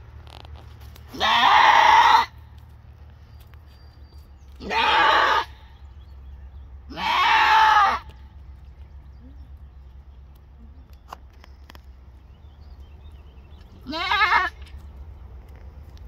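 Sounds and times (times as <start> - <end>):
goat bleating loudly: 1.1 - 2.4, 4.6 - 5.7, 6.9 - 8.2, 13.8 - 14.7.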